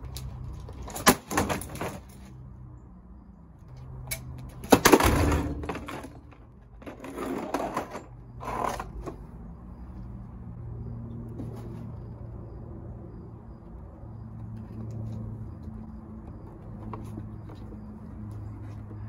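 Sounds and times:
hard plastic crashing on asphalt: 4.6s - 7.5s.

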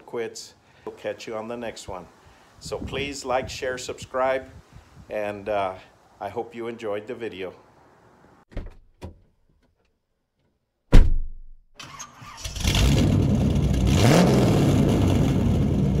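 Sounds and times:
car engine starting and revving: 11.8s - 16.0s.

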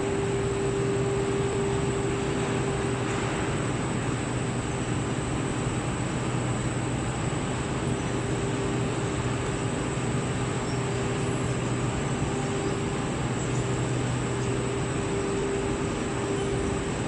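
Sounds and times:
steady higher tone: 0.0s - 3.8s, 8.1s - 17.0s
constant low hum: 0.0s - 17.0s
fan and motor noise: 0.0s - 17.0s.

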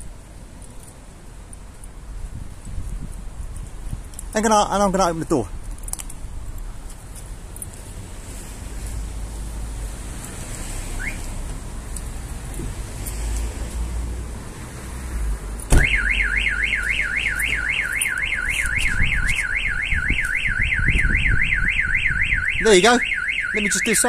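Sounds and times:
street and wind rumble: 0.0s - 24.0s
car alarm siren warbling: 11.0s - 11.3s, 15.7s - 24.0s.

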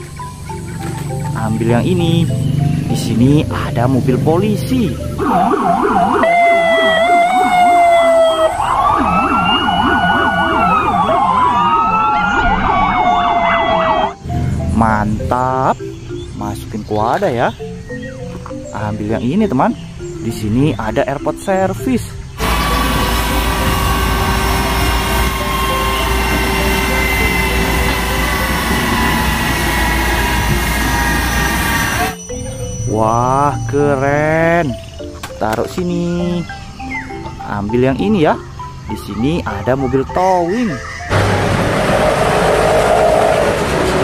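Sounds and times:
constant whining tones: 0.0s - 20.2s, 21.2s - 37.4s, 40.2s - 44.0s
police siren wail: 4.8s - 14.4s, 22.4s - 32.2s, 41.1s - 44.0s
police siren yelp: 4.9s - 14.2s, 22.4s - 32.2s, 41.1s - 44.0s.

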